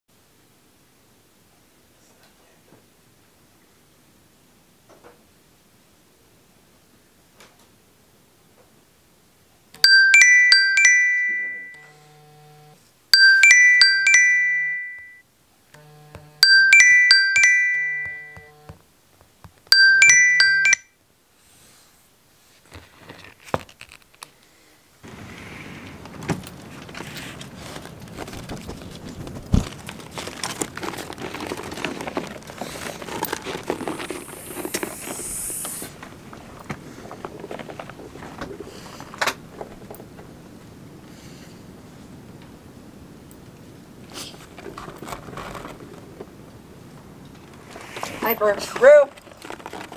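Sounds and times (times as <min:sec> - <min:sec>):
phone alarm chiming tune: 0:09.8 - 0:12.1, 0:13.2 - 0:15.2, 0:16.4 - 0:18.7, 0:19.7 - 0:20.9
rough background noise: 0:25.0 - 0:42.6, 0:43.3 - 0:49.9.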